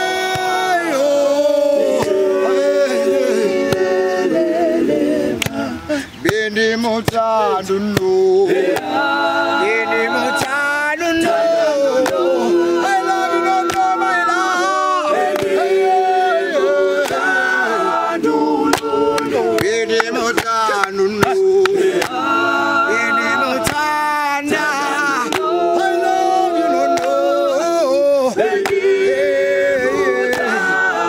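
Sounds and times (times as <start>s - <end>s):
male choir singing in harmony: 0.0s - 31.0s
hand claps: 5.4s - 5.6s, 8.7s - 9.0s, 10.3s - 10.6s, 12.0s - 12.3s, 13.6s - 14.0s, 15.3s - 15.6s, 17.0s - 17.4s, 18.6s - 22.3s, 23.6s - 24.0s, 24.6s - 25.6s, 26.8s - 27.7s, 28.5s - 28.9s, 30.2s - 30.7s.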